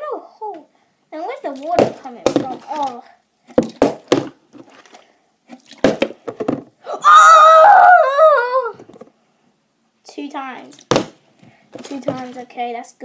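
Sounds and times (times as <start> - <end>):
plastic water bottle knocking: 1.6 - 4.8, 5.8 - 6.7, 10.9 - 12.4
boy yelling: 6.8 - 8.8.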